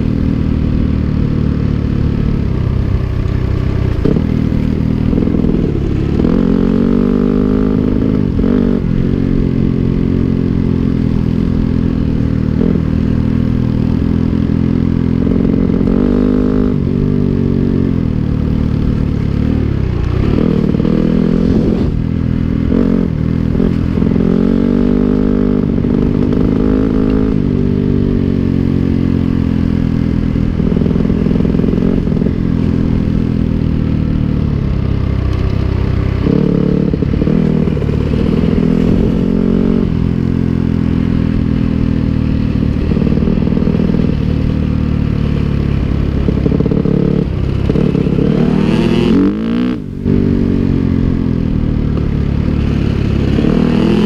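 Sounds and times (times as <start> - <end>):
dirt bike engine revving: 18.8 - 22.0, 36.0 - 41.0, 42.4 - 54.0.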